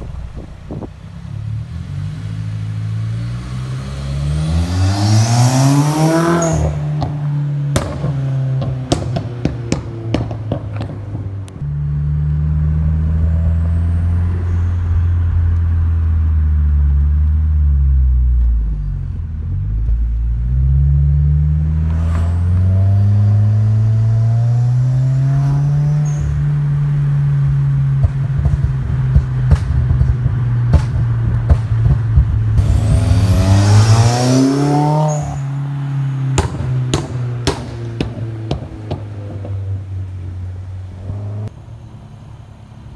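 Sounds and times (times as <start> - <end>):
car engine revving: 0.0 - 41.8
exhaust crackles and pops: 6.5 - 12.4, 26.1 - 34.2, 36.2 - 40.3.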